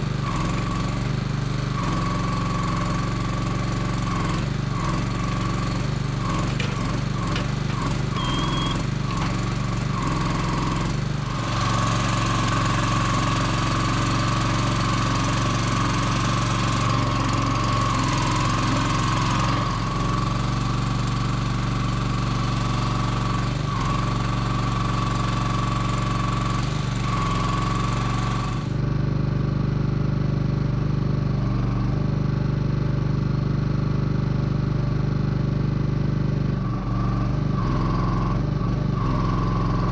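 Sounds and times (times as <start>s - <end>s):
engine drone: 0.0s - 28.8s, 36.4s - 39.9s
hydraulic whine: 1.7s - 13.7s.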